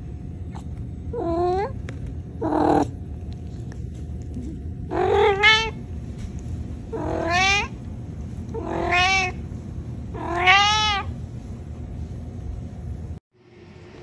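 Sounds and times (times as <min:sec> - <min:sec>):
cat meowing: 0:04.9 - 0:05.8, 0:06.9 - 0:07.8, 0:08.5 - 0:09.4, 0:10.2 - 0:11.1.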